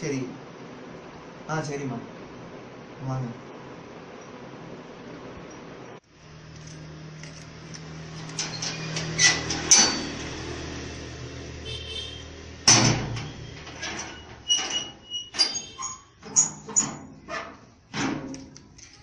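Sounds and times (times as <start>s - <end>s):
metal sliding gate rumbling: 6.5s - 19.0s
gate clanks and rattles: 8.1s - 10.7s, 12.6s - 19.0s
loud metal clang: 8.4s - 10.8s, 11.7s - 15.8s.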